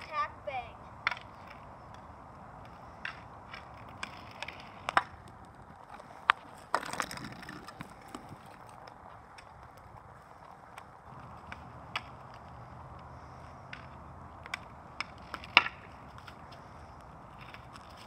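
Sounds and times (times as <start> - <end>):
skate wheels rolling on asphalt: 0.0 - 18.0
hockey stick clacking on ball: 1.0 - 9.5, 10.7 - 12.6, 13.6 - 16.6.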